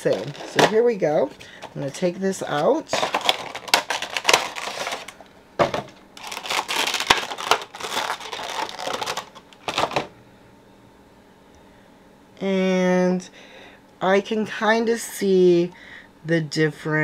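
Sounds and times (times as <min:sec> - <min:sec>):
plastic packaging crinkling: 0:00.0 - 0:10.1.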